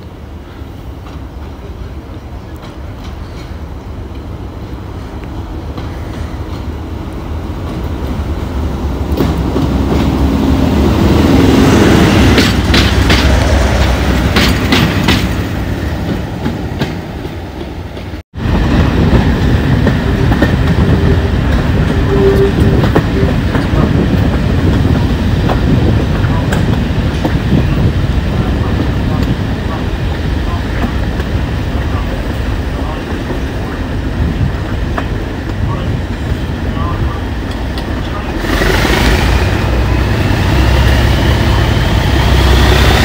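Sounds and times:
diesel locomotive engine: 0.0s - 43.0s
train wheels clattering over rail joints: 12.2s - 18.2s.

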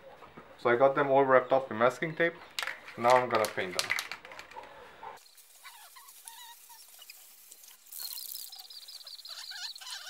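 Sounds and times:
aerosol spray can hissing: 5.4s - 9.3s
fast chirping trill: 5.6s - 10.0s
faint chirps: 7.9s - 10.0s.

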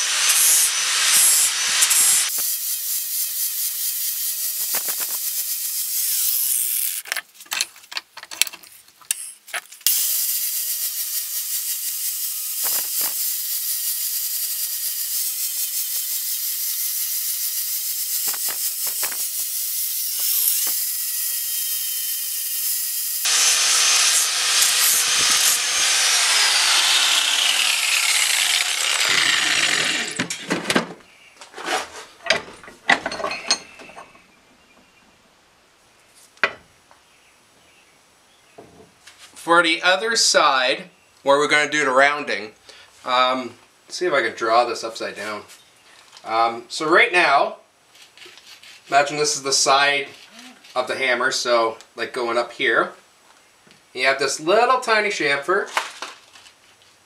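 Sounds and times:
angle grinder grinding steel: 0.0s - 7.1s, 9.9s - 30.4s.

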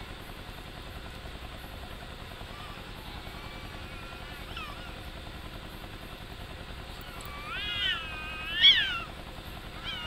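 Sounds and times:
cat caterwauling: 2.5s - 5.0s, 7.0s - 9.2s, 9.8s - 10.0s.

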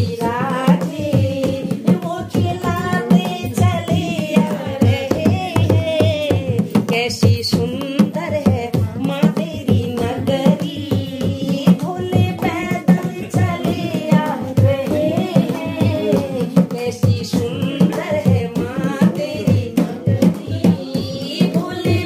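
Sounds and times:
hand drum rhythm: 0.0s - 22.0s
women singing devotional song: 0.0s - 22.0s.

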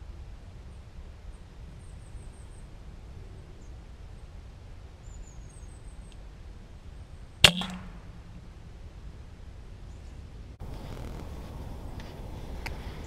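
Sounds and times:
steady low rumble: 7.4s - 10.6s.

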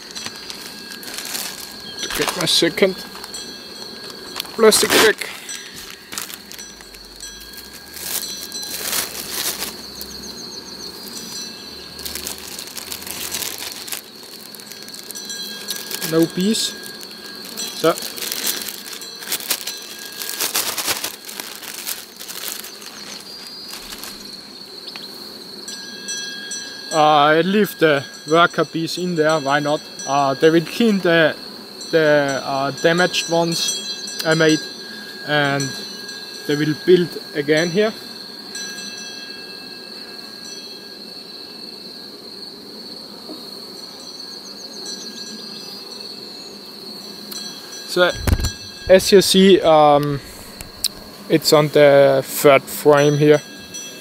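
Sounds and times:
plastic bag crinkling: 0.0s - 10.1s, 11.0s - 24.4s, 47.9s - 51.6s
crickets chirring: 0.0s - 54.0s.

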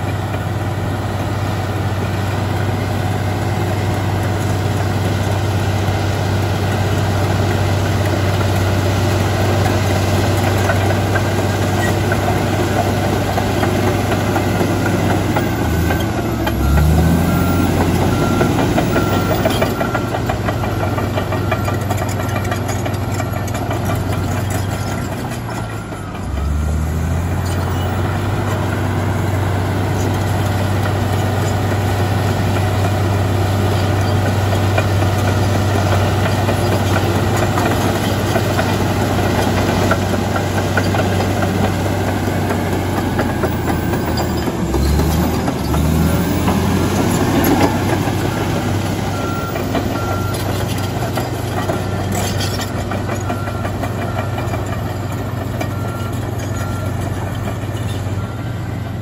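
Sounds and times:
bulldozer diesel engine running: 0.0s - 59.0s.

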